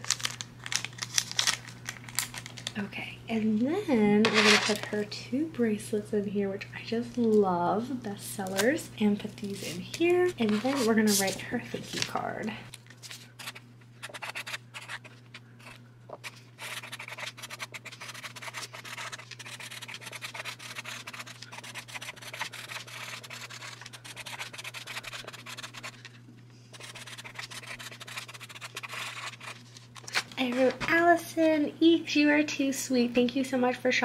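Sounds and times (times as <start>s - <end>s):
marker scratching on card: 13.4s - 15.2s, 16.2s - 26.0s, 26.8s - 29.6s.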